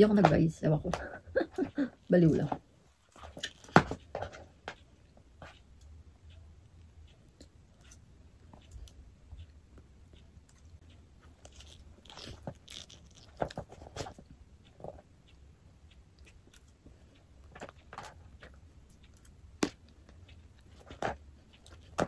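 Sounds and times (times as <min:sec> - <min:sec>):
chewing: 0:07.0 - 0:22.0.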